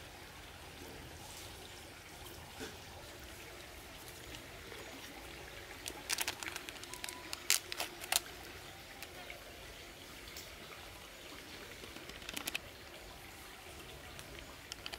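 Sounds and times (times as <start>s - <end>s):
faint stream-like background: 0.0s - 14.9s
paper sachet tearing and crinkling: 5.7s - 9.0s, 11.8s - 12.6s.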